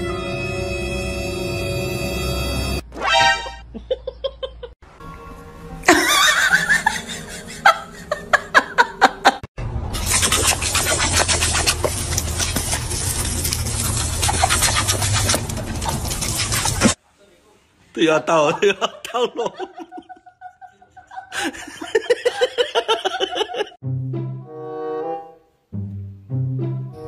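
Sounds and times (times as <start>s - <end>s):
hose nozzle spraying water: 10.0s - 17.0s.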